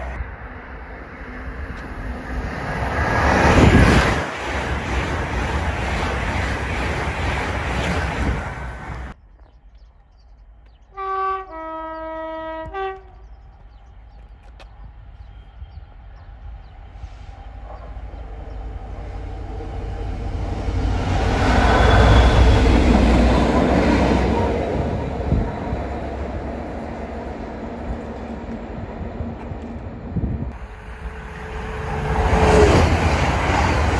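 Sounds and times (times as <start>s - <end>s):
locomotive engine and wheels passing: 0.0s - 10.9s, 13.2s - 33.9s
locomotive two-tone horn: 11.0s - 13.2s.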